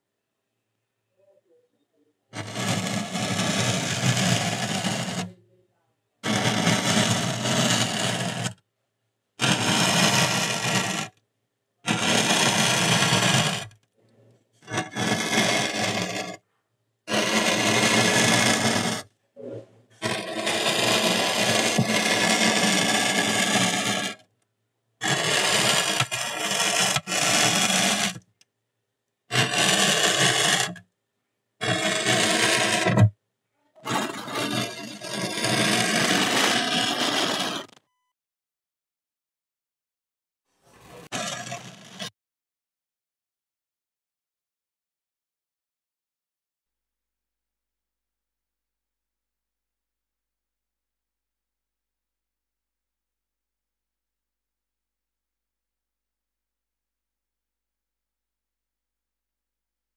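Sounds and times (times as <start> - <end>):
hot iron crackling through foam: 20.0 - 24.2, 25.0 - 28.2.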